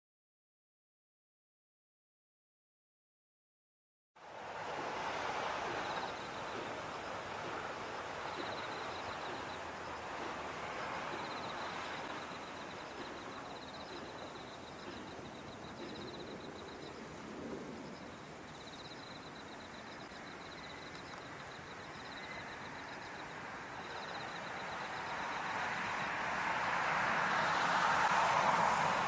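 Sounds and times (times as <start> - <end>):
airliner jet engines rushing: 4.2 - 20.0, 20.6 - 29.0.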